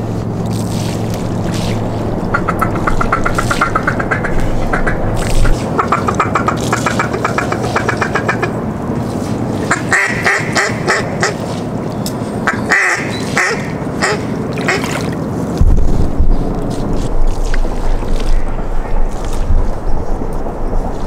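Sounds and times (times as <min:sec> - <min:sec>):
duck quacking: 0:02.3 - 0:08.6, 0:09.7 - 0:11.4, 0:12.4 - 0:15.0.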